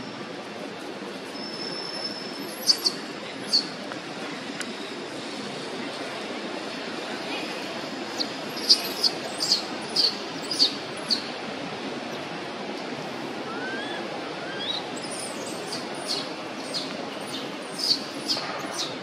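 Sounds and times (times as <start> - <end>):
steady outdoor hiss: 0.0 - 19.0
small birds chirping: 8.2 - 11.3, 13.6 - 19.0.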